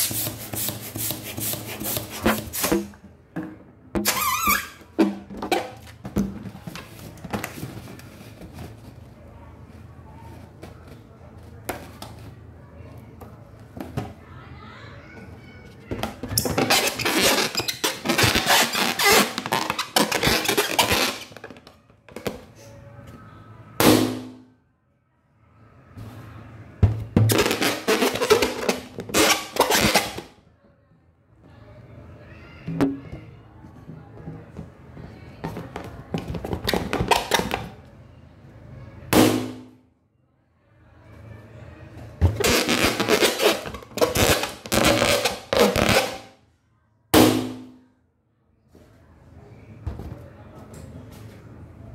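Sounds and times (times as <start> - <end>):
balloon rubbing against microphone: 0.0 - 2.8, 16.4 - 21.4, 27.3 - 30.3, 42.4 - 46.3.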